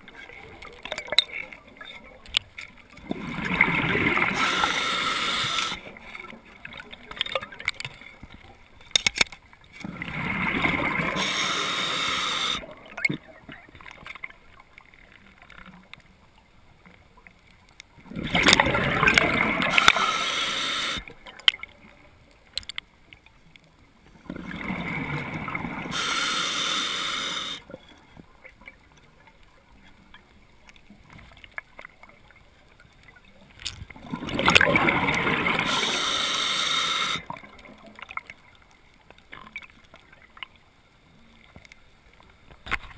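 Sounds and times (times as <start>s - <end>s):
underwater bubbles from exhalations: 9.8s - 13.3s, 18.0s - 20.0s, 34.0s - 36.2s.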